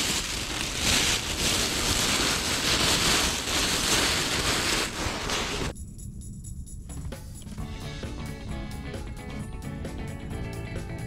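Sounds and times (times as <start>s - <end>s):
plastic bags rustling: 0.0s - 5.7s.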